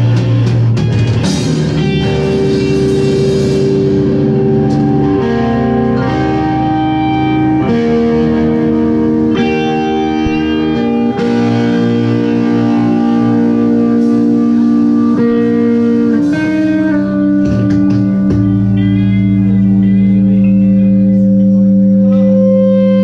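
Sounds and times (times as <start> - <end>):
electric guitar and bass chords: 0.0 - 23.0
drum hits: 10.2 - 11.8, 17.4 - 18.7.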